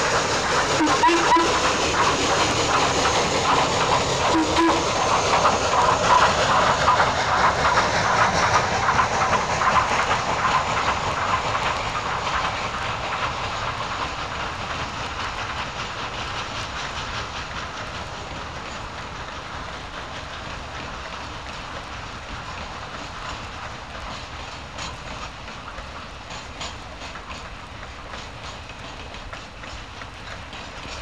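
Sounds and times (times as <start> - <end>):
steam hissing: 0.0 - 31.0
steam train rattling past: 0.0 - 31.0.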